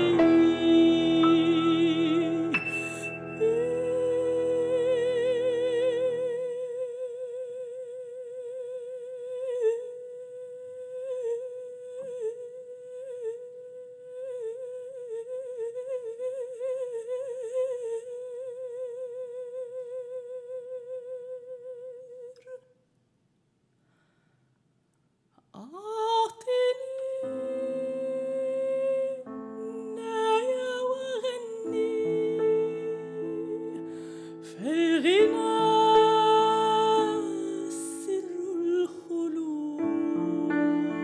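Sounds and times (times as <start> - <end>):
grand piano chord: 0.0 - 5.8
soprano singing wordless line: 0.0 - 22.7, 25.6 - 41.0.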